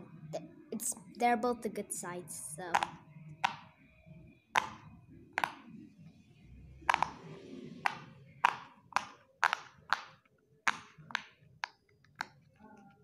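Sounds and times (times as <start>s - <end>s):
fidget toy bubbles popping: 2.6s - 3.8s, 4.5s - 5.8s, 6.8s - 12.4s.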